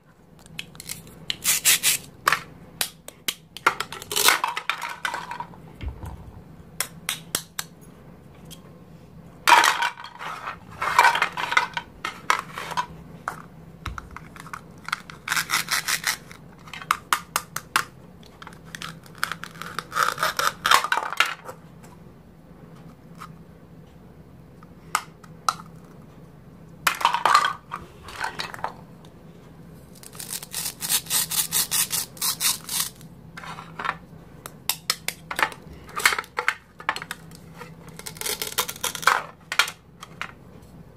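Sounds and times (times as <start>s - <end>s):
velcro ripping apart: 0.8s - 2.1s, 30.0s - 33.0s.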